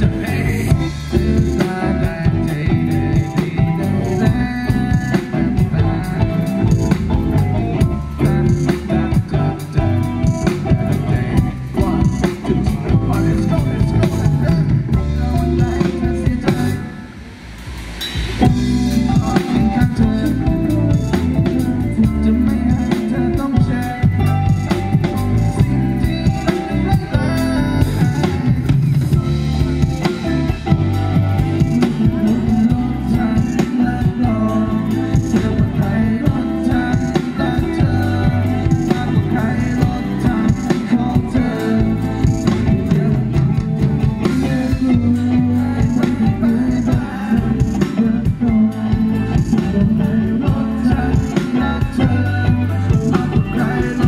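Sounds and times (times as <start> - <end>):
drum kit hits: 0.0 - 22.9
bass guitar notes: 0.0 - 54.0
drum kit beat: 0.0 - 54.0
electric guitar: 0.0 - 54.0.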